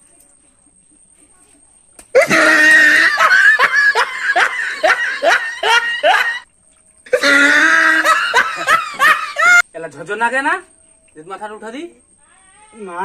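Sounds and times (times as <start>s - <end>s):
loud laughter: 2.2s - 6.4s, 7.1s - 9.6s.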